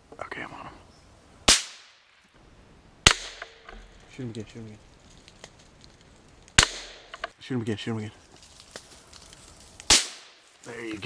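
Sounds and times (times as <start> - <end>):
rifle shots: 1.5 - 2.0, 3.0 - 3.7, 6.6 - 7.2, 9.9 - 10.4.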